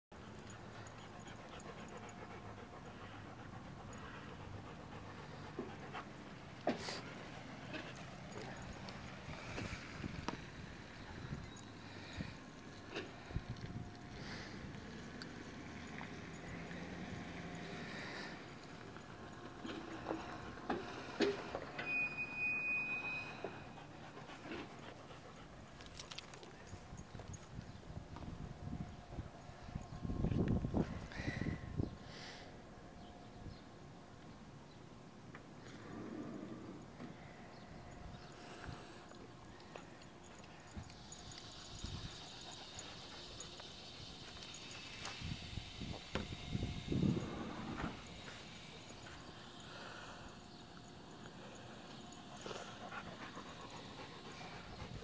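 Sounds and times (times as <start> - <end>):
dog panting: 0.2 - 10.0, 23.7 - 26.8, 37.9 - 44.9, 50.3 - 55.0.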